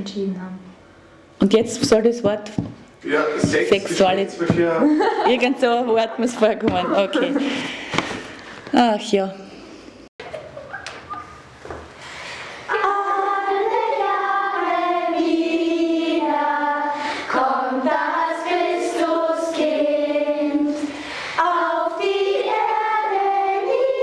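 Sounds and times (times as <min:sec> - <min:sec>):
choir of high voices singing: 0:12.7 - 0:24.0.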